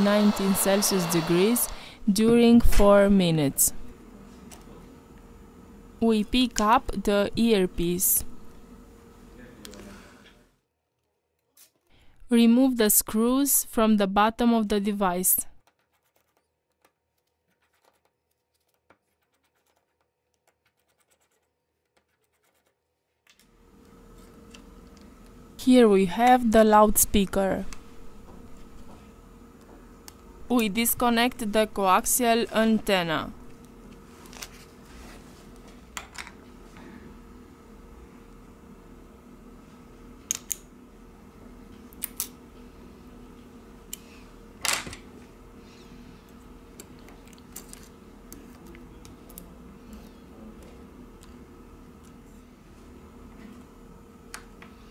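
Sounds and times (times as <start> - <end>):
faint steady hum: 0.0 - 10.6, 23.3 - 54.9.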